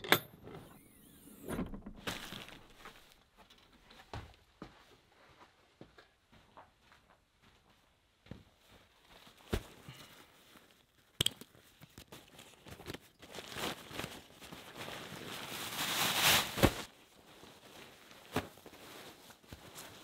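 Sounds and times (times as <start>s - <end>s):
rustling tearing noise: 11.9s - 16.9s.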